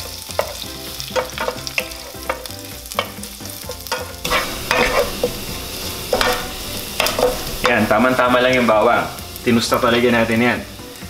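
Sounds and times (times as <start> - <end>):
garlic sizzling in hot oil: 0.0 - 11.0
wooden spoon scraping pan: 0.4 - 7.9.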